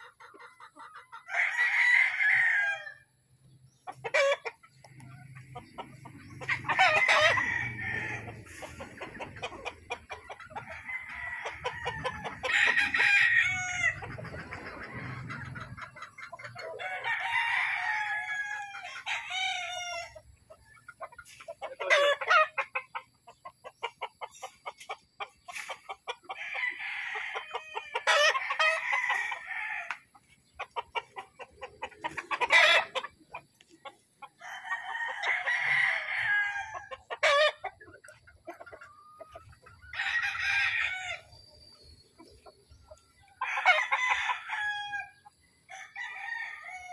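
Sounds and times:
chicken clucking: 0.0s - 46.9s
roosters crowing: 1.2s - 3.2s, 5.6s - 20.4s, 21.2s - 22.8s, 25.5s - 33.2s, 34.3s - 37.8s, 39.4s - 41.6s, 43.2s - 46.9s.

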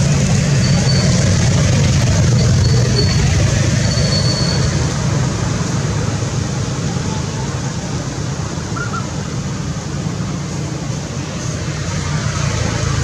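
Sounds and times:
vehicle rumble: 0.0s - 13.0s
continuous hiss: 4.7s - 13.0s.

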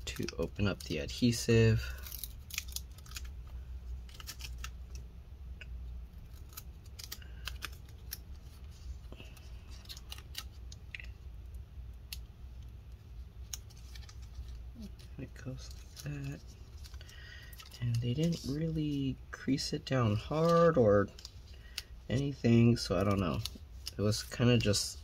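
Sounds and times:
adhesive tape clicks and crinkles: 0.0s - 18.7s.

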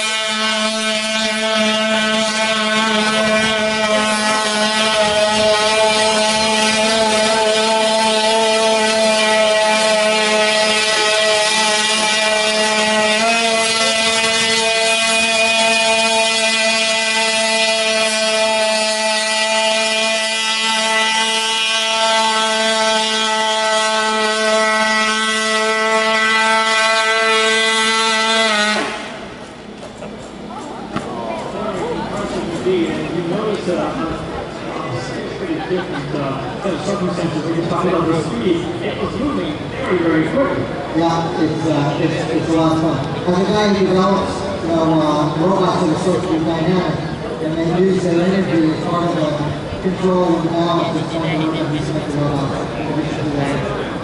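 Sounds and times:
combustion engine buzzing drone: 0.0s - 54.0s.

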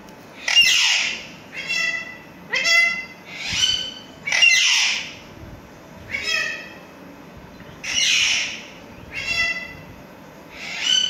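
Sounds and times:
parakeets squawking: 0.4s - 5.2s, 6.1s - 6.8s, 7.8s - 9.8s, 10.5s - 11.0s.

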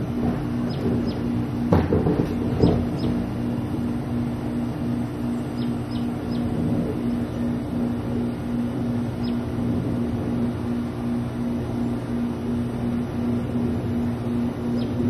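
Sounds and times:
pulsing mechanical hum: 0.0s - 15.0s
high bird chirps: 5.4s - 6.5s, 9.2s - 9.4s.

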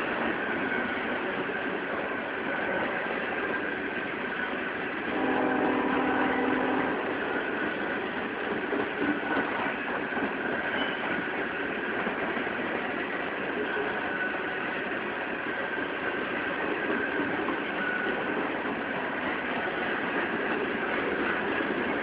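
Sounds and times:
train wheels rumbling on rail: 0.0s - 22.0s
thin steady whine: 5.1s - 8.6s.

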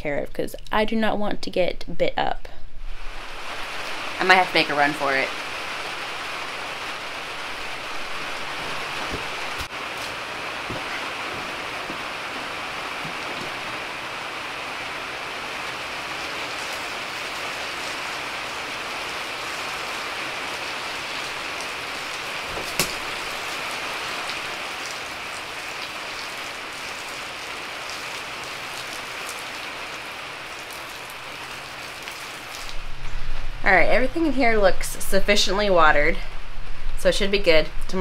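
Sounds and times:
steady rain: 2.8s - 38.0s
sharp knock: 22.6s - 23.0s.

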